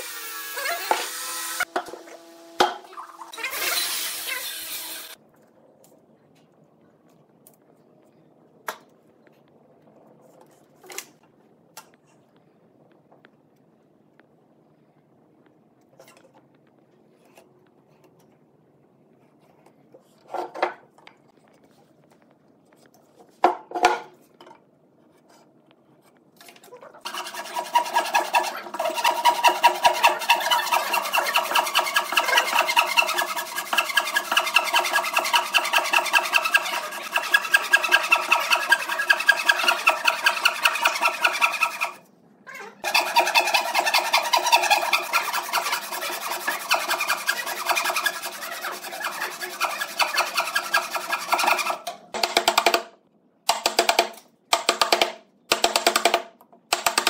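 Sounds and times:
hand saw rasping through wood: 27.1s - 42.0s, 42.8s - 51.8s.

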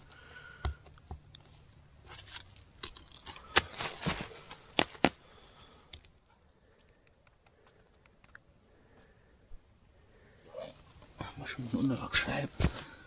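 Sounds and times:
dry kindling crackling and snapping: 2.7s - 8.5s.

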